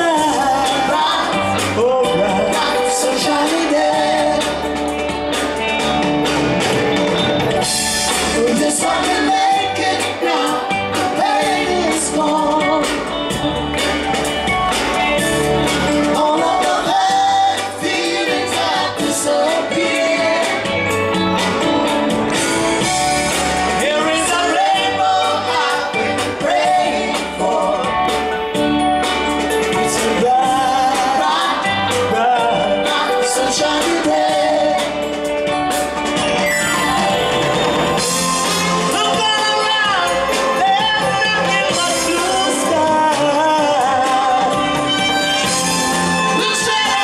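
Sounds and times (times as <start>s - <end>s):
person singing: 0.0s - 4.8s, 8.2s - 13.1s, 15.7s - 21.5s, 29.6s - 35.2s, 38.8s - 47.0s
drum kit: 0.0s - 47.0s
electric guitars: 0.0s - 47.0s
live reggae band: 0.0s - 47.0s.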